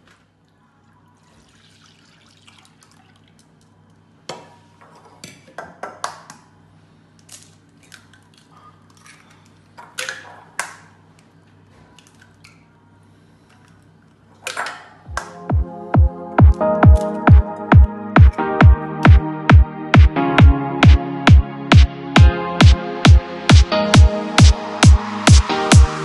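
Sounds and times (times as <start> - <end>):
milk pouring into a bowl: 1.1 - 3.6.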